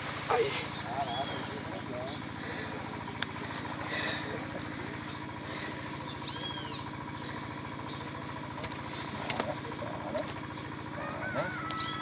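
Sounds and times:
motor humming: 0.0 - 12.0
bird chirp: 0.6 - 2.3, 6.0 - 8.3.

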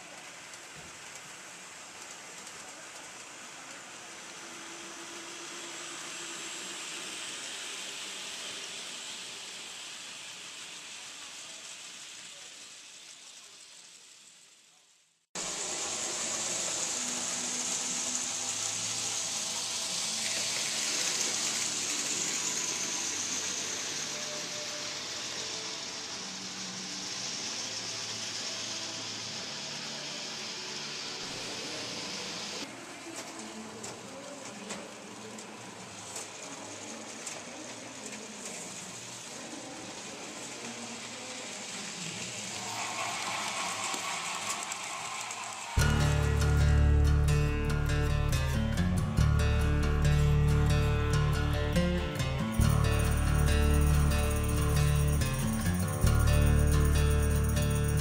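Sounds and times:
model train rolling on track: 0.0 - 14.8, 15.4 - 58.0
steady hiss: 0.0 - 58.0.

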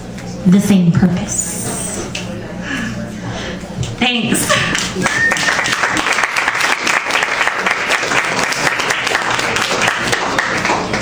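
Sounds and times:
audience applauding: 4.7 - 11.0.

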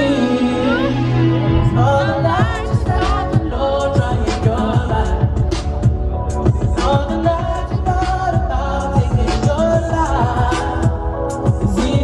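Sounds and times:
pop music with singing: 0.0 - 12.0.

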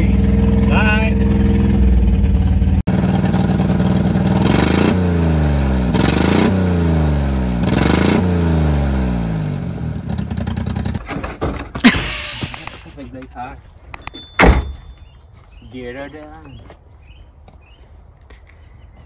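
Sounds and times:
small engine revving: 3.1 - 11.0
scraping clatter: 10.9 - 11.8
sharp knock: 14.4 - 14.9.

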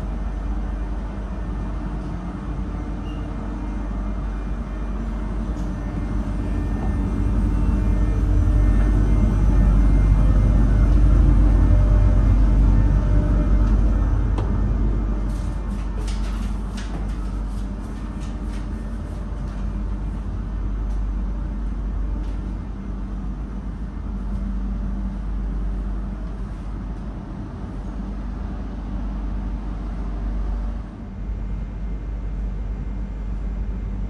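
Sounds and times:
railcar hum and rumble: 0.0 - 34.0.

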